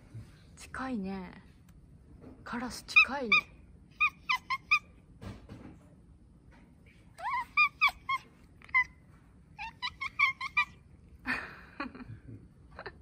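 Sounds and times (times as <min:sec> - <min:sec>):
cats chattering with high chirps: 0:02.9 - 0:05.0, 0:06.9 - 0:11.8.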